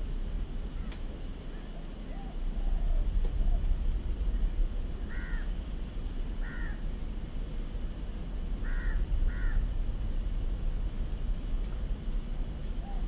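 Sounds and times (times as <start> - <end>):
low background rumble: 0.0 - 13.0
crow cawing: 5.0 - 5.6, 6.4 - 6.9, 8.6 - 9.7.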